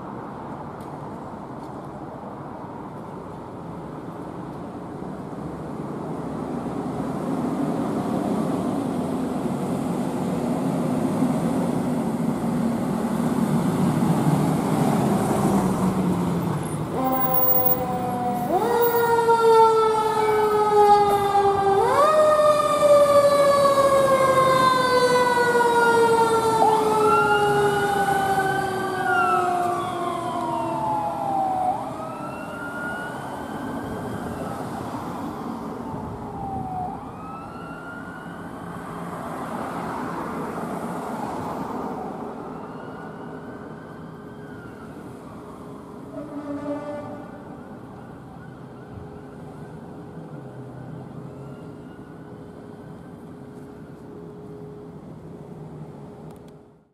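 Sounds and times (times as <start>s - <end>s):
wailing siren: 16.9s - 39.9s, 41.2s - 54.0s.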